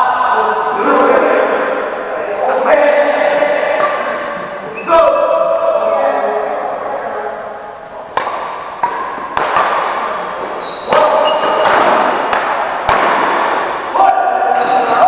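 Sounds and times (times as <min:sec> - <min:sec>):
rackets hitting shuttlecock: 0:03.8 - 0:04.3, 0:08.1 - 0:15.0
people shouting: 0:10.9 - 0:15.0.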